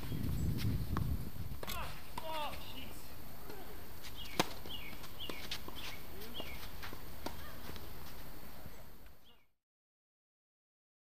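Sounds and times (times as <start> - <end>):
outdoor background noise: 0.0 - 9.6
racket hitting tennis ball: 1.6 - 2.7, 3.4 - 8.2
bird chirping: 4.1 - 6.7, 8.7 - 9.6.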